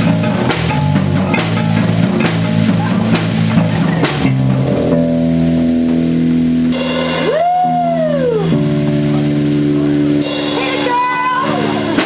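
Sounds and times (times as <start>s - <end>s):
rock band playing live: 0.0s - 12.0s
cymbal crashes: 8.7s - 12.0s.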